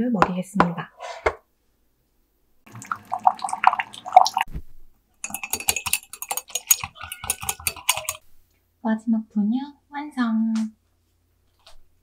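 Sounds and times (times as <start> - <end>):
liquid splashing into mug: 2.7 - 4.5, 5.2 - 8.2
whisk clicking against mug: 5.2 - 8.2.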